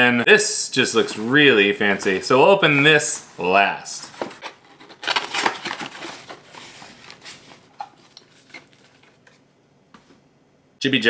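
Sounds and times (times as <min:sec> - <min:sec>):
cardboard rustling and scraping: 0:00.8 - 0:09.4.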